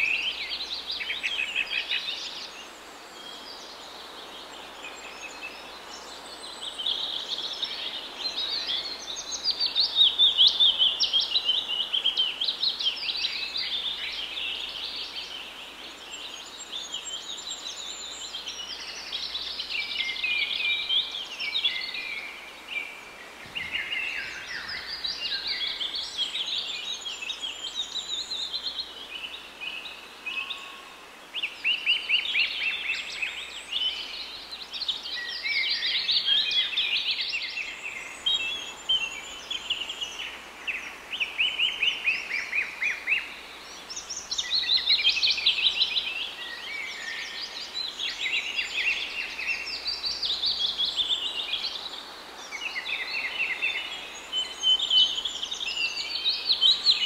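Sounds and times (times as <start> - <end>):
small birds chirping and trilling: 0.0 - 57.0.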